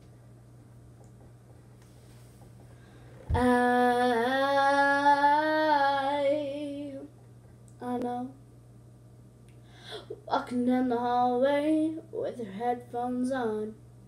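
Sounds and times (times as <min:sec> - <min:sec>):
girl singing long note: 0:03.3 - 0:07.1.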